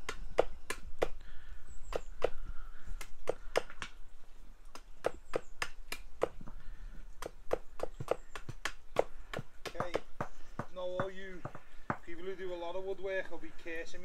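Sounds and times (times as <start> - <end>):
axe chopping wood: 0.0 - 1.2, 1.9 - 2.4, 3.0 - 4.0, 4.7 - 6.6, 7.2 - 12.1.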